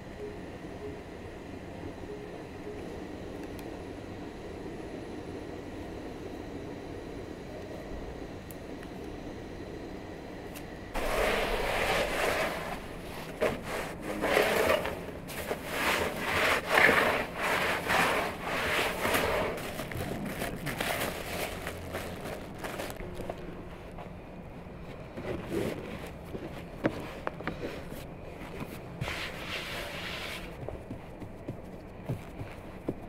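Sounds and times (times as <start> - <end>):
stick scraping embers on brick: 11.0 - 22.2.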